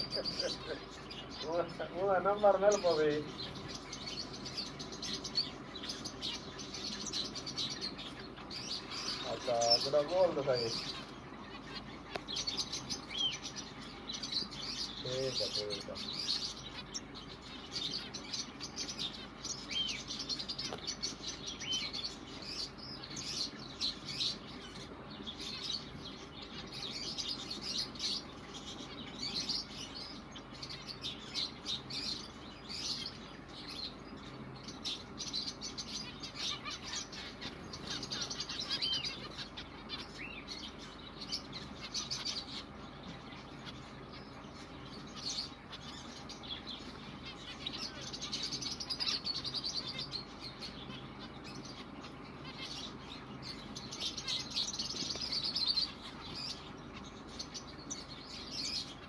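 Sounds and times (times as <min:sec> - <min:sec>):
finches chirping: 0:00.0 - 0:59.0.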